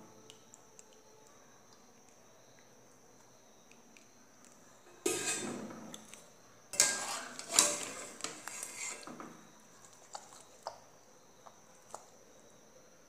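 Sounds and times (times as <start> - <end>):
metal skimmer clinking on pot: 5.0 - 5.6, 6.7 - 8.3.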